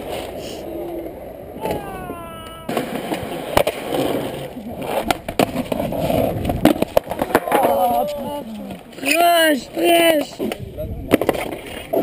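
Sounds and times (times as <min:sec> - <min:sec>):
skateboard clacking on ground: 0:00.0 - 0:12.0
skateboard wheels rolling on concrete: 0:00.0 - 0:12.0
person calling out: 0:01.6 - 0:02.9.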